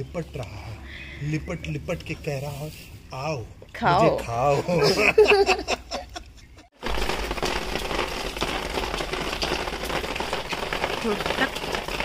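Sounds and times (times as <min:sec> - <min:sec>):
wood fire crackling: 0:00.0 - 0:04.1, 0:06.7 - 0:12.0.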